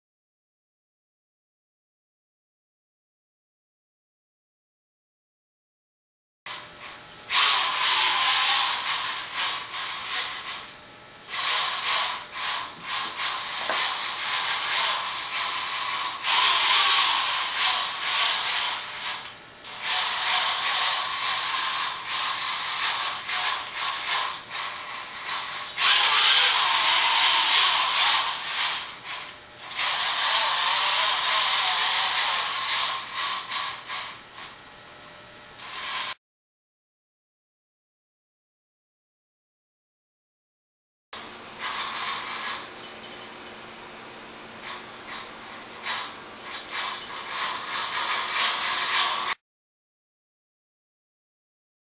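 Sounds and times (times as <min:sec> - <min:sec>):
robot drive motors whirring: 0:06.5 - 0:34.5, 0:35.6 - 0:36.2, 0:41.2 - 0:49.4.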